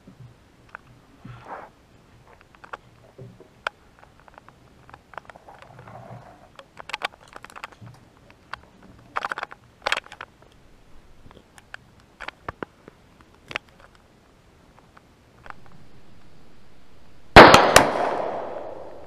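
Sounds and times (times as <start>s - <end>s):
metallic clicks of handguns: 6.6s - 14.0s.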